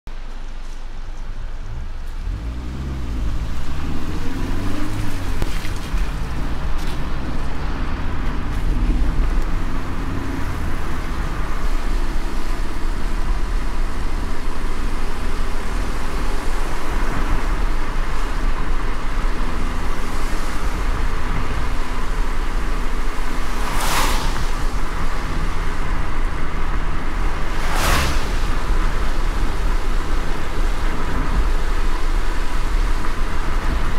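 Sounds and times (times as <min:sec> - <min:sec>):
car engine and road rumble: 0:00.1 - 0:33.9
rain on windscreen: 0:00.2 - 0:33.9
tyres hissing on wet road: 0:00.8 - 0:33.9
whoosh of spray: 0:23.4 - 0:24.9, 0:27.4 - 0:29.4.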